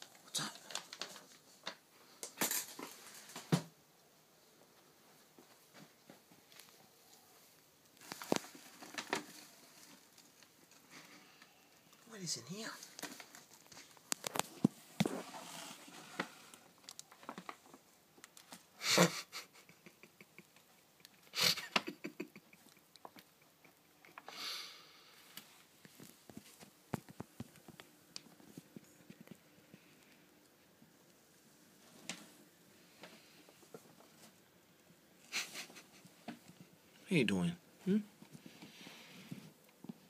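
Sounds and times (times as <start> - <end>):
paper wrapper rustling: 0.0 - 3.5, 8.0 - 11.0, 12.7 - 18.7
kitten scratching paper wrapper: 8.0 - 10.4.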